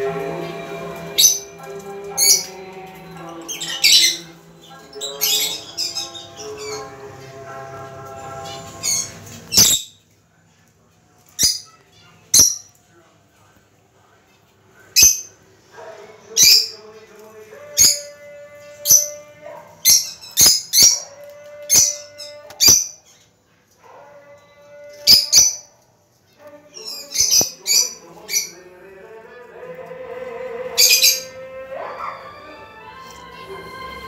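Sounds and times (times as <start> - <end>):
background music: 0.0 - 9.6, 15.8 - 22.9, 23.8 - 25.8, 26.6 - 34.0
lovebirds shrill calls: 8.6 - 9.9.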